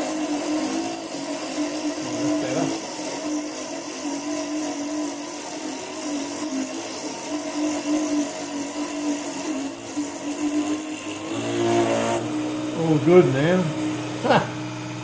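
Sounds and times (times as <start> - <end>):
hiss of drill cutting metal: 0.0 - 14.7
drill motor whine: 0.0 - 15.0.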